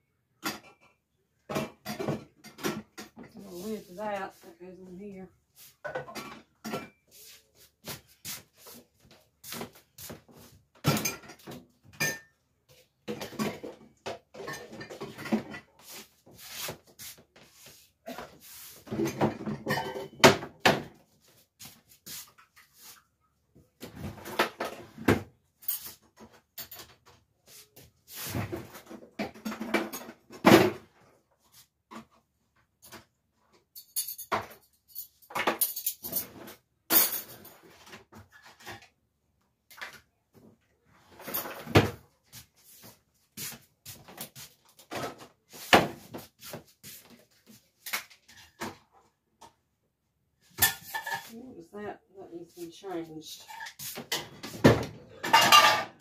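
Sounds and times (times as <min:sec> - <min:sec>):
dishes clinking: 0:19.0 - 0:20.4, 0:55.2 - 0:56.0
cabinet doors opening and shutting: 0:54.1 - 0:56.0.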